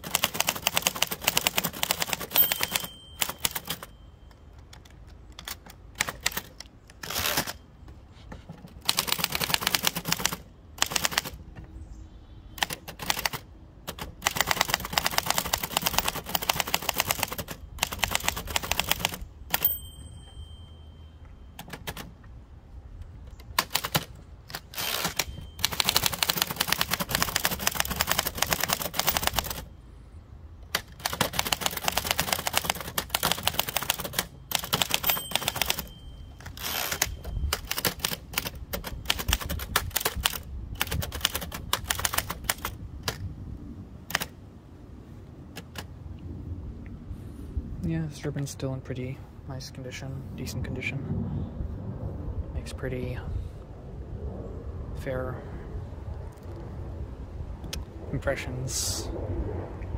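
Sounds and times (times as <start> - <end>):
typewriter keystrokes: 0.0 - 3.9, 4.6 - 7.6, 8.7 - 11.4, 12.6 - 19.7, 21.6 - 22.2, 23.4 - 29.7, 30.7 - 43.2, 44.1 - 44.3, 45.6 - 45.9
typewriter carriage bell: 0.0 - 5.6, 8.8 - 11.3, 14.4 - 22.1, 24.6 - 29.7, 31.0 - 39.6.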